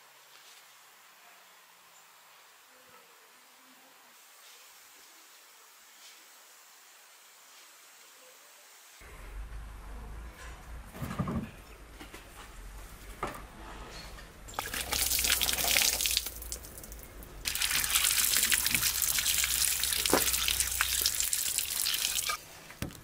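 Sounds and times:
water pouring and splashing: 14.5 - 22.4.

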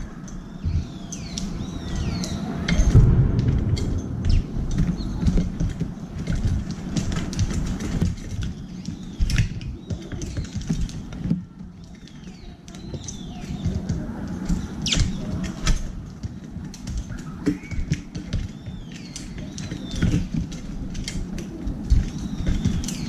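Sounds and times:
sparrows chirping: 0.0 - 23.0
low rumble: 1.6 - 7.6.

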